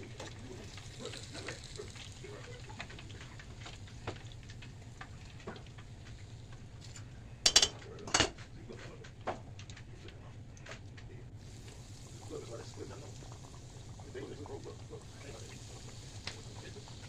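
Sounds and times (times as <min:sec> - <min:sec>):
fish frying in oil: 0:00.0 - 0:07.7, 0:11.3 - 0:17.0
metal tongs clanking: 0:06.8 - 0:08.3.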